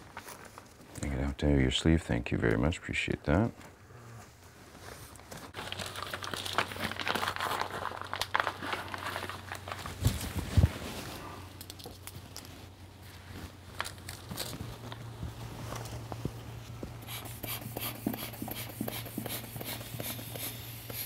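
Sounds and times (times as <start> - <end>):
fabric cuff rustling and crinkling: 4.7 - 17.0.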